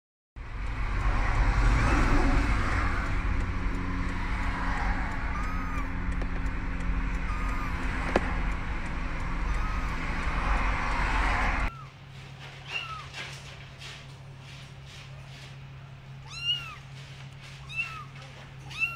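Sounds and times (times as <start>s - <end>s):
road rumble inside vehicle: 0.4s - 18.9s
kitten mewing: 4.4s - 6.3s, 7.0s - 8.5s, 9.4s - 10.8s, 12.6s - 13.2s, 16.2s - 17.0s, 17.6s - 18.9s.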